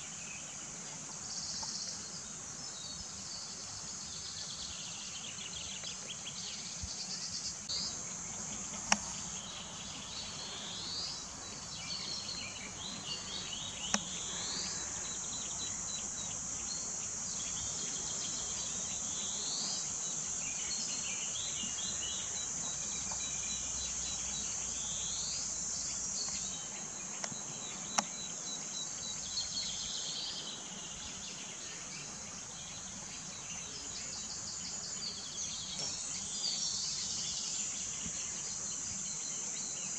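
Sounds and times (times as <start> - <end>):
high-pitched insect chorus: 0.0 - 39.9
sharp clicks: 8.8 - 9.2, 13.8 - 14.2.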